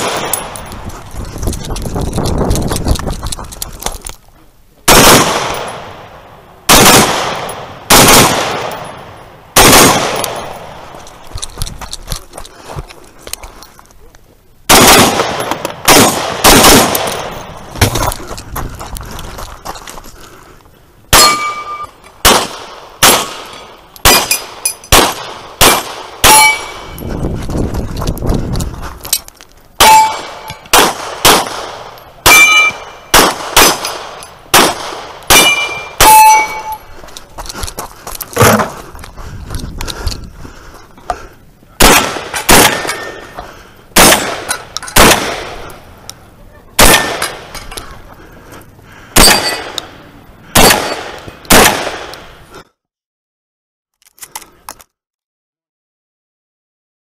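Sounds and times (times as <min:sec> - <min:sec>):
pistol shots: 0:00.0 - 0:00.6, 0:04.9 - 0:06.0, 0:06.7 - 0:10.8, 0:14.7 - 0:17.4, 0:21.1 - 0:27.0, 0:29.8 - 0:36.8, 0:41.8 - 0:43.3, 0:44.0 - 0:45.7, 0:46.8 - 0:47.5, 0:49.2 - 0:52.3
steel target ringing: 0:21.2 - 0:22.0, 0:26.2 - 0:27.0, 0:29.8 - 0:30.7, 0:32.3 - 0:33.1, 0:35.3 - 0:36.9.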